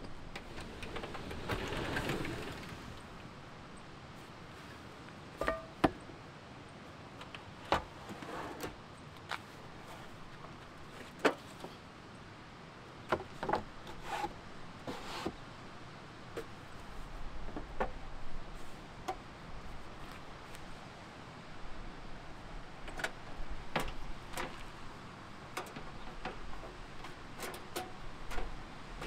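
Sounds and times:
drawers knocking and clicking: 0.4 - 3.0.

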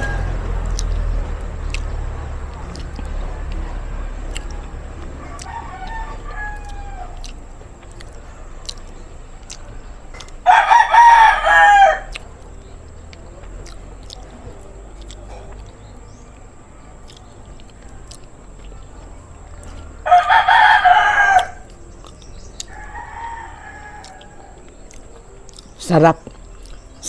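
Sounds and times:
rooster crowing: 0.0 - 1.2, 2.7 - 8.8, 10.1 - 12.4, 19.7 - 25.4.

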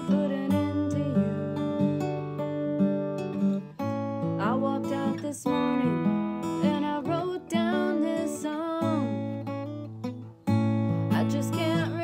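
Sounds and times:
woman singing: 0.0 - 2.1, 4.2 - 9.6, 11.0 - 12.0
acoustic guitar folk pattern: 0.0 - 12.0.

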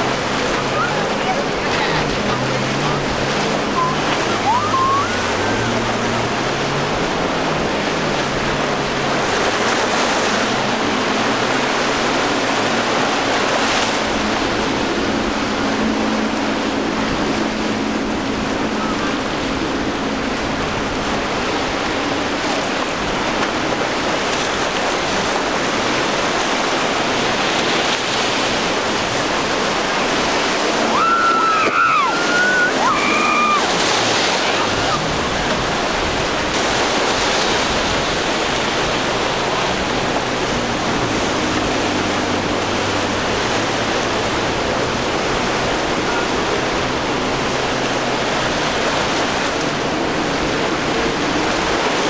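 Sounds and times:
faint outboard motor: 0.0 - 52.0
rough surf: 0.0 - 52.0
high sliding calls: 3.7 - 5.7.

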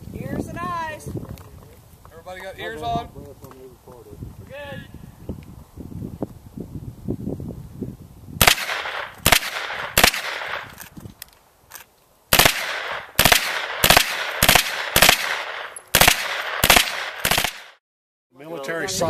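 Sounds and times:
gunshots with echo: 8.4 - 10.8, 12.3 - 17.8.

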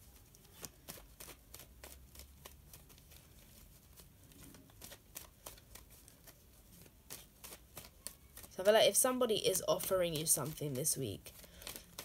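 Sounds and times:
cards being shuffled: 0.0 - 12.0.

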